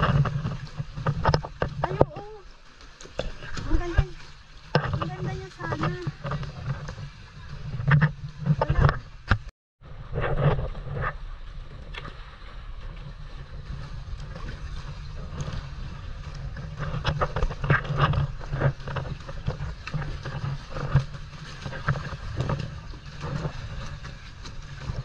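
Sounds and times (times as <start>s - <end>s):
wind rumble on microphone: 0.0s - 2.4s, 3.2s - 25.0s
sea water splashing against rocks: 0.0s - 9.5s
kayak paddle strokes: 0.0s - 25.0s.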